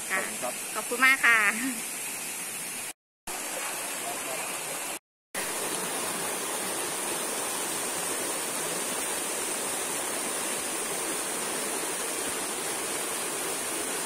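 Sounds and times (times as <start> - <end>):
rocky stream rushing: 3.3 - 14.0.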